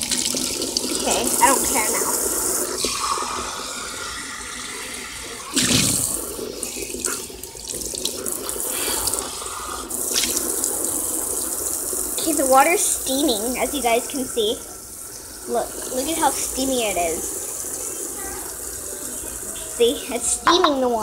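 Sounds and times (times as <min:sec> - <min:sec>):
faucet water spraying into sink: 0:00.0 - 0:21.0
water splash: 0:05.5 - 0:06.3.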